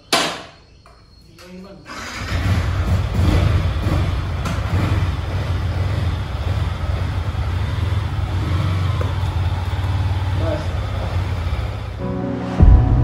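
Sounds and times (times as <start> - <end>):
motorcycle engine idling: 2.2 - 12.0.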